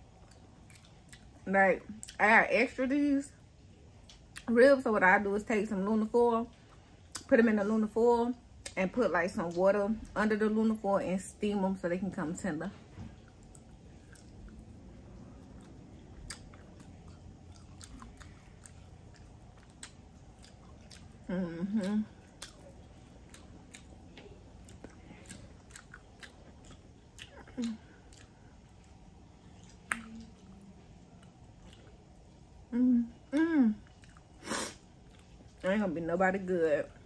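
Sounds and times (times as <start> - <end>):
person chewing ribs: 0.0 - 1.4, 13.1 - 32.6, 33.3 - 35.6.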